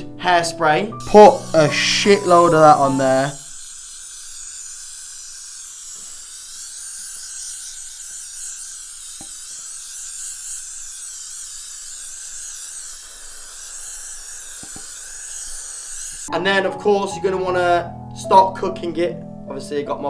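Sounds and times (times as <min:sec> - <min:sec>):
aerosol can spraying hiss: 0:01.0 - 0:16.3.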